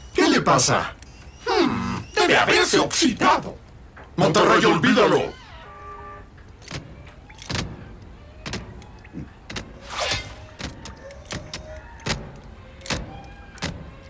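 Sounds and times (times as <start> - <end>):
metallic clicks and clanks: 6.3 - 9.8, 10.4 - 14.0.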